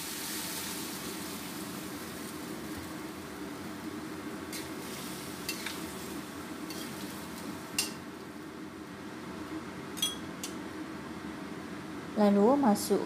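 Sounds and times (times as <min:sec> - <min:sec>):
food sizzling in a wok: 0:00.0 - 0:08.5
metal spatula scraping a wok: 0:04.5 - 0:05.9, 0:06.7 - 0:07.1.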